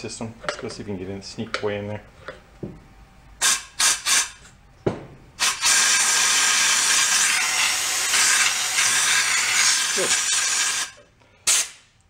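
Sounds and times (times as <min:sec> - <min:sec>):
compressed air blowgun hissing: 0:05.4 - 0:10.9.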